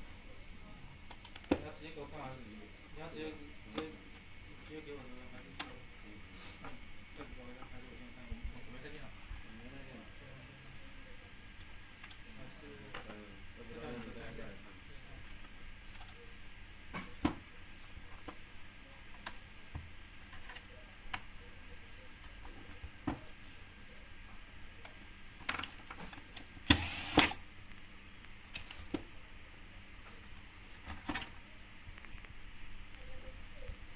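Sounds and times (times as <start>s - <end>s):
noisy handling sound: 24.8s - 29.0s.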